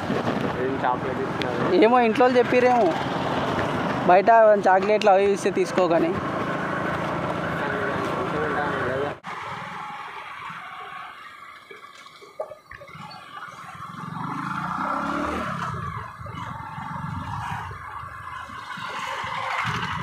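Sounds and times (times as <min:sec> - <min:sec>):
wind rushing over microphone: 0:00.0 - 0:08.2, 0:14.1 - 0:20.0
motorcycle engine running: 0:00.0 - 0:09.2, 0:13.3 - 0:20.0.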